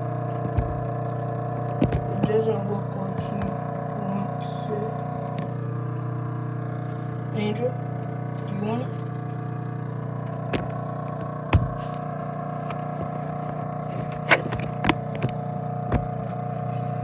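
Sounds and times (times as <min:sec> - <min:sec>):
aquarium filter pump humming: 0:00.0 - 0:17.0
sharp knocks and taps: 0:01.6 - 0:02.4, 0:11.5 - 0:11.9.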